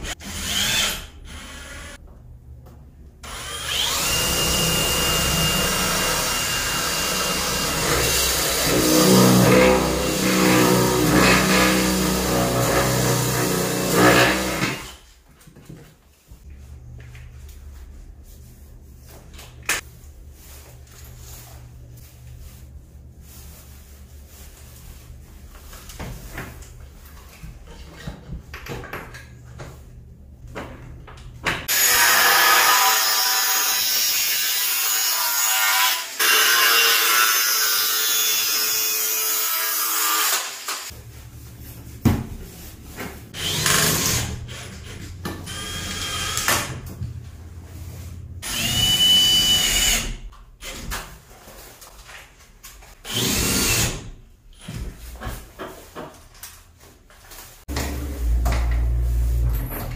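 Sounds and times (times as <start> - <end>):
cordless drill running: 3.2 - 7.7, 45.5 - 46.5, 48.4 - 50.2
angle grinder cutting metal: 3.3 - 15.0, 31.7 - 40.9.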